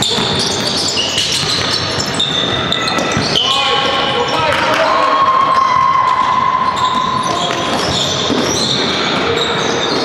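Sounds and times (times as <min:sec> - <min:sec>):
basketball bouncing on court: 0:00.0 - 0:03.6, 0:05.7 - 0:10.0
high squeaking tones: 0:00.0 - 0:04.5.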